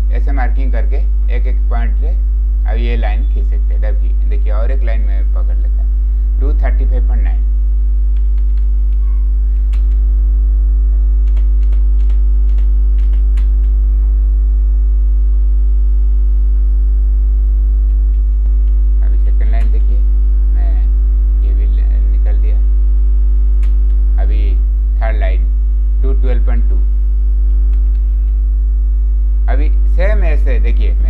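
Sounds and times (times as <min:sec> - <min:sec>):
electrical mains hum: 0:00.0 - 0:31.0
murmured voice: 0:19.0 - 0:22.6.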